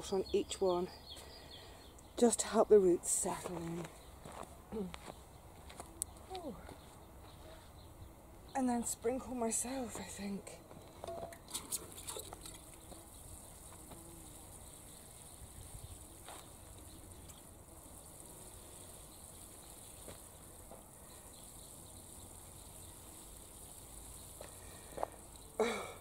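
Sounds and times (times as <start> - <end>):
watering can sprinkling water: 11.3 - 25.6.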